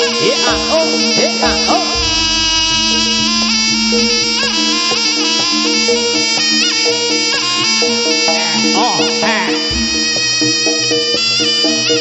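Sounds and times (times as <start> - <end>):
steady drone: 0.0 - 7.2
double-reed shawm melody: 0.0 - 12.0.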